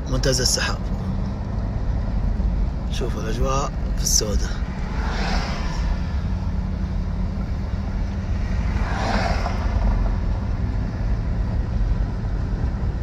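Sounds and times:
car engine and road rumble: 0.0s - 13.0s
rushing noise: 4.2s - 7.3s, 8.2s - 10.2s.

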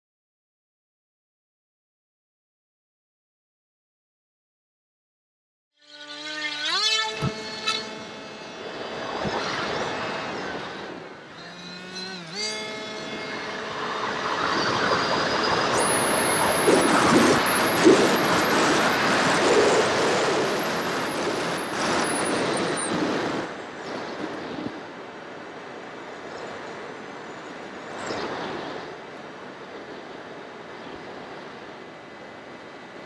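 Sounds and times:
electric motor and propeller whine: 5.8s - 33.0s
thin high whine: 5.8s - 33.0s
wind noise rushing: 13.4s - 26.9s.

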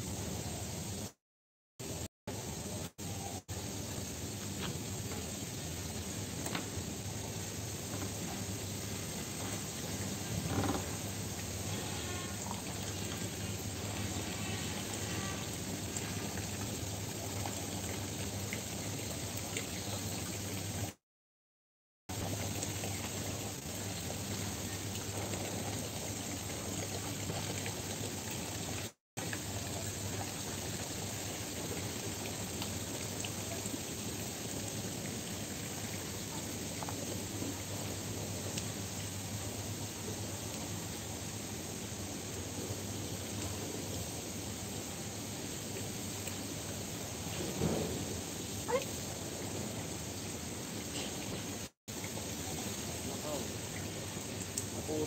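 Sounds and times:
ambient hiss: 0.0s - 1.2s, 1.8s - 21.0s, 22.1s - 55.0s
rushing hiss of dockside: 36.5s - 55.0s.

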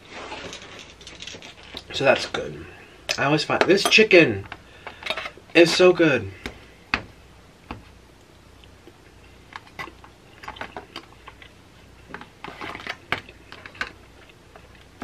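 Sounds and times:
person chewing food: 8.2s - 11.6s.

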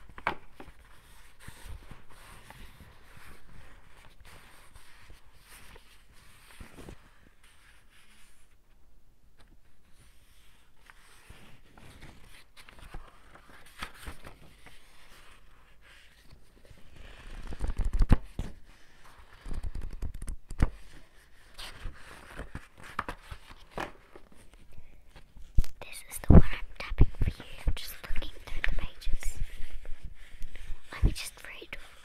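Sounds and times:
book pages flipping: 0.0s - 8.6s, 9.4s - 32.0s
paper sheet rustling: 9.9s - 25.4s.

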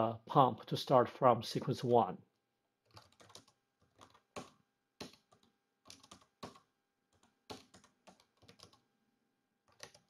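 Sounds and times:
typing on computer keyboard: 2.8s - 8.8s, 9.7s - 10.0s.

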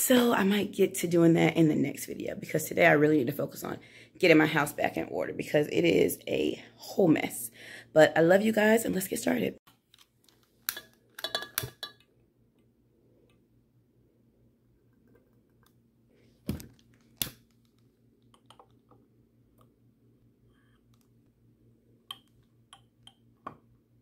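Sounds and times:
faint steady hum: 9.4s - 24.0s
glass jars clinking on countertop: 11.2s - 12.0s.

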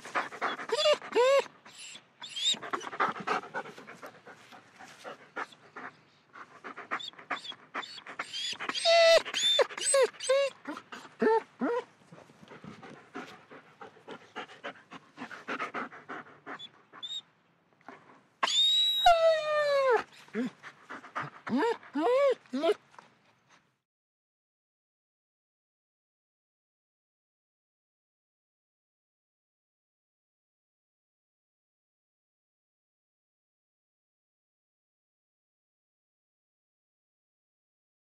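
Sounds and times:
dog panting: 0.0s - 17.2s, 20.0s - 23.7s
dog whining: 0.1s - 3.4s, 6.9s - 11.9s, 16.5s - 17.2s, 18.4s - 20.6s, 21.2s - 22.8s.

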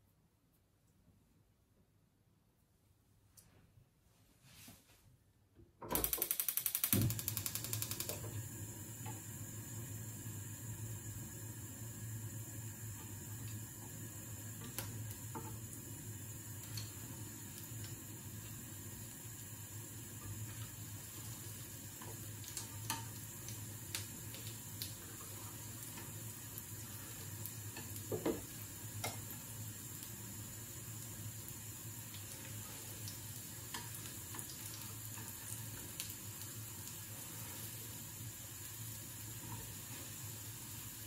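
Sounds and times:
sharp ticks: 6.0s - 8.2s
food sizzling in a frying pan: 6.6s - 41.0s.

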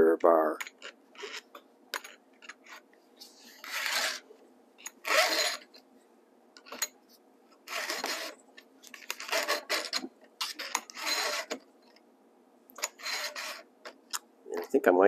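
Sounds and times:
file rasping on chain: 3.6s - 4.2s, 5.0s - 5.7s, 7.7s - 8.3s, 9.2s - 11.6s, 12.8s - 13.7s.

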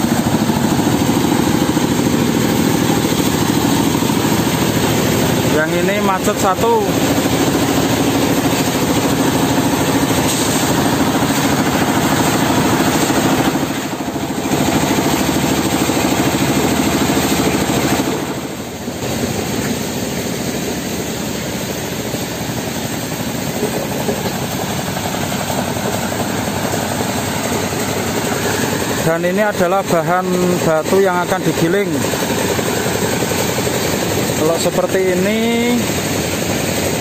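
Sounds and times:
low machine hum: 0.0s - 37.0s.

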